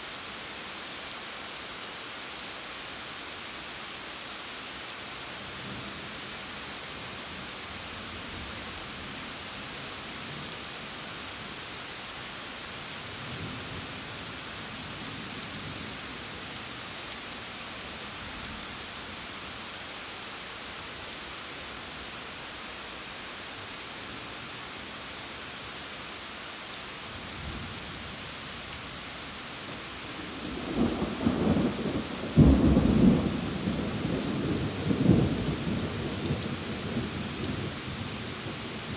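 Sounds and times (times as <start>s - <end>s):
steady rain falling: 0.0s - 38.9s
thunder rumbling: 30.3s - 37.0s.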